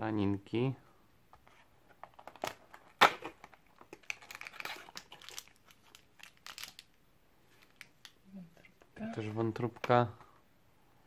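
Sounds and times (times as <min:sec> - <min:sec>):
plastic packet crinkling: 0:02.3 - 0:07.0.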